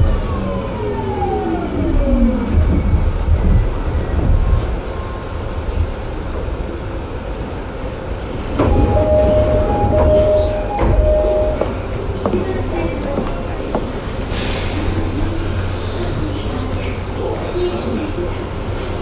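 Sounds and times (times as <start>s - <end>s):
wheel and track rumble: 0.0s - 19.0s
train inverter whining: 8.4s - 14.3s.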